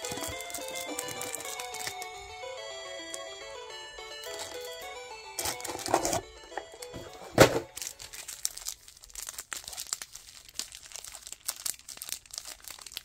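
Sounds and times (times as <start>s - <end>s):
foil wrappers crinkling and tearing: 0.0s - 2.2s, 5.4s - 6.2s, 6.8s - 13.0s.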